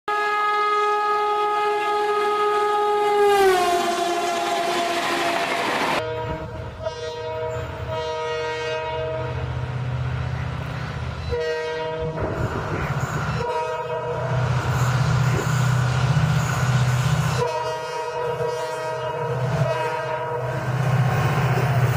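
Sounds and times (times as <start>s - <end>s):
electric locomotive horn: 0.1s - 9.6s, 11.2s - 12.6s, 13.3s - 15.4s, 17.3s - 20.8s
diesel locomotive two-note horn: 0.1s - 9.7s, 11.2s - 12.6s, 13.3s - 15.0s, 17.3s - 20.8s
rail noise: 1.5s - 21.9s.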